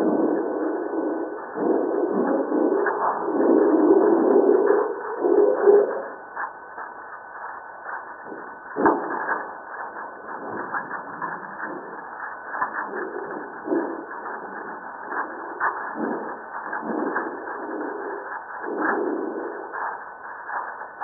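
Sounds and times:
crackle of small clicks: 0.1s - 21.0s.

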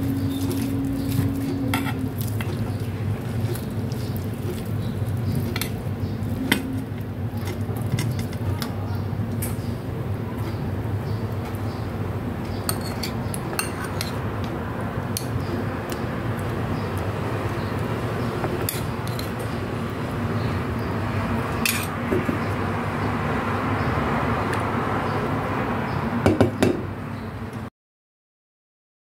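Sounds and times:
metal spoon clinking on bowl: 21.6s - 21.9s.

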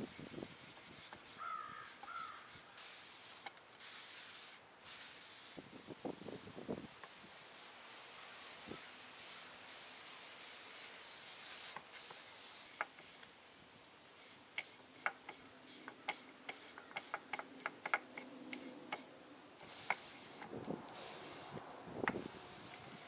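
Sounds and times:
cloth rag wiping wood: 0.0s - 5.6s, 8.2s - 13.2s.

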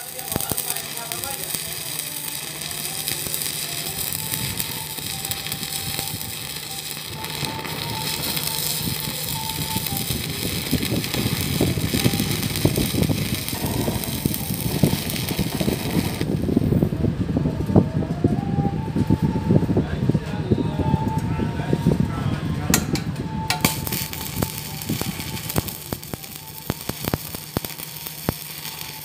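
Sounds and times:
welding arc crackling and sizzling: 0.0s - 17.0s, 23.4s - 29.0s.

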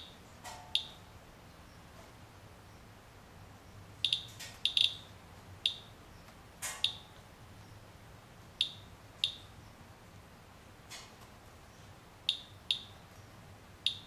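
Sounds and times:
geiger counter beeps: 4.0s - 5.0s, 12.3s - 12.9s.

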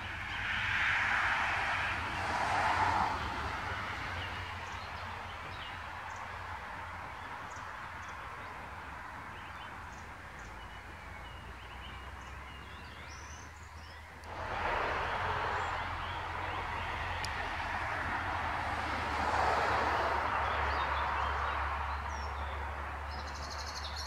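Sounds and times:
outdoor background noise: 0.0s - 24.0s.

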